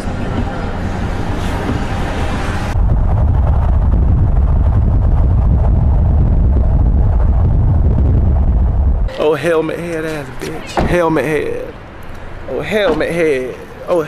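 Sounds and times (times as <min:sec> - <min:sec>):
car rumbling on road: 0:00.0 - 0:14.0.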